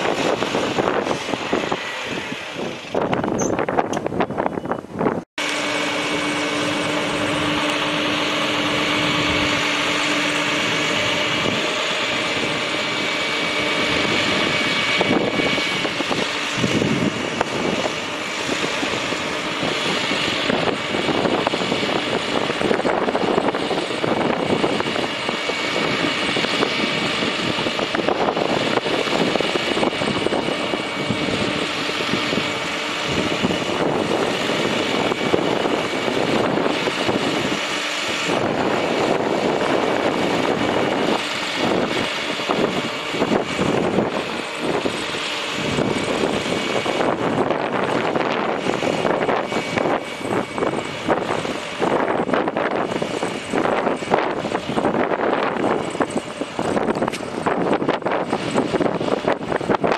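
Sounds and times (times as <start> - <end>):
diesel truck engine running: 0.0 - 59.9.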